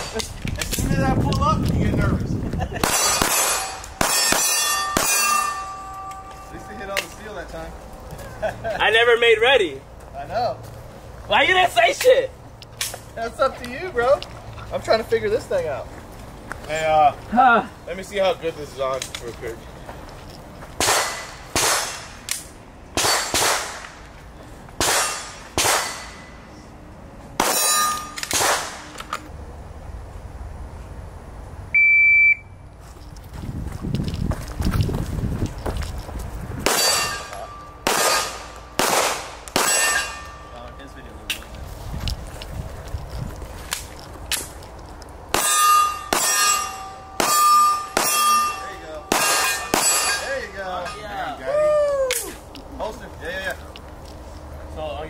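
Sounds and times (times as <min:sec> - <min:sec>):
bullet hitting steel target: 0:02.8 - 0:07.2, 0:20.8 - 0:24.0, 0:24.8 - 0:26.4, 0:27.4 - 0:29.0, 0:36.6 - 0:40.5, 0:45.3 - 0:50.3
handgun shots: 0:20.8 - 0:24.0, 0:24.8 - 0:26.2, 0:27.4 - 0:29.1, 0:36.7 - 0:40.2
high electronic beep: 0:31.8 - 0:32.5.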